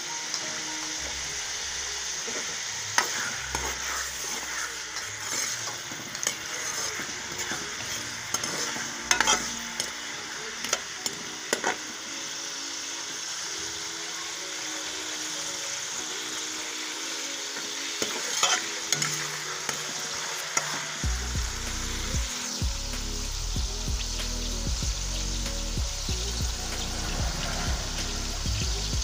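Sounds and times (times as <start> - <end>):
onions sizzling in hot oil: 0.0 - 29.0
metal spoon scraping pan: 3.0 - 10.0, 18.0 - 21.0.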